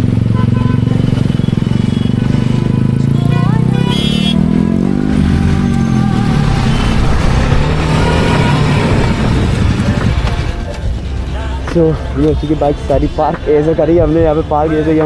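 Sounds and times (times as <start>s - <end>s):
motorcycle engine running: 0.0s - 14.6s
high tone rising glide: 2.8s - 11.5s.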